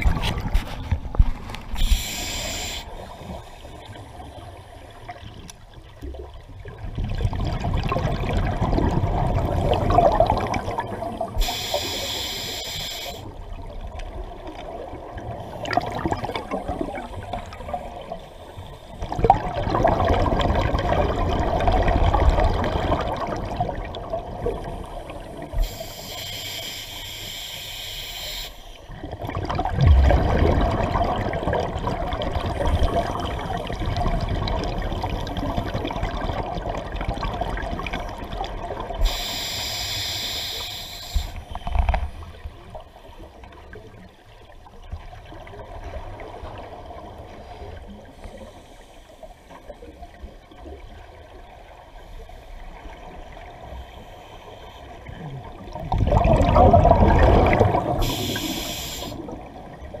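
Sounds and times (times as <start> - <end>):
regulator hissing inhalations: 1.8 - 3.1, 11.4 - 13.3, 25.5 - 28.8, 39.0 - 41.5, 58.0 - 59.3
gurgling exhaust bubbles: 19.0 - 24.7, 29.1 - 39.0, 55.3 - 58.4.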